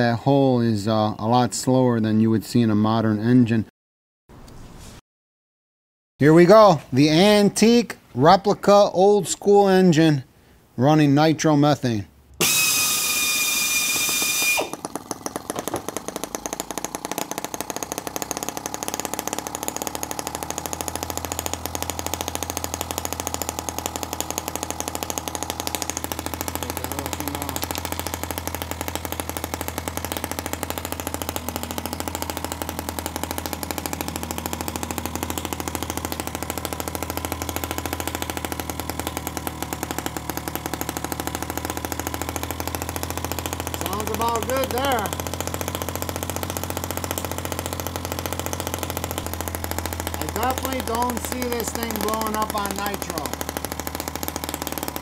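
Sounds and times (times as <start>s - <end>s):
electric drill starter whining: 12.3s - 55.0s
model engine popping: 12.4s - 55.0s.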